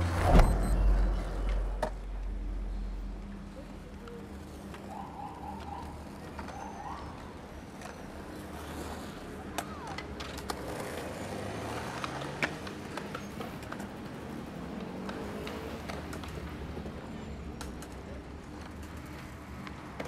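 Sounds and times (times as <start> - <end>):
low traffic hum: 0.0 - 20.0
skateboard wheels on paving stones: 3.5 - 20.0
skateboard clacks: 7.7 - 20.0.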